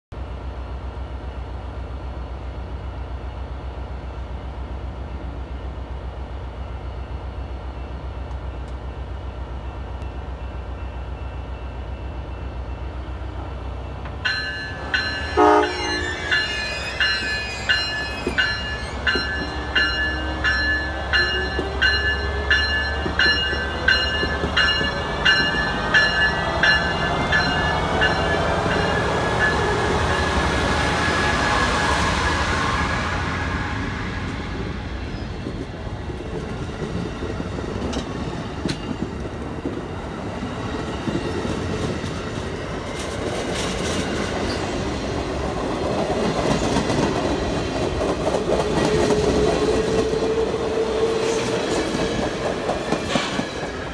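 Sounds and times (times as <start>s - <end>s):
rising whine of train: 0.1s - 53.9s
locomotive bell ringing: 13.8s - 30.4s
train horn toot: 15.3s - 16.5s.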